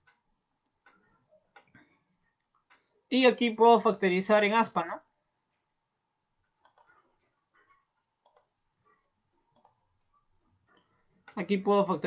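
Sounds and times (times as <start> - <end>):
faint computer mouse clicks: 6.5 - 7.0, 8.2 - 8.5, 9.5 - 9.8.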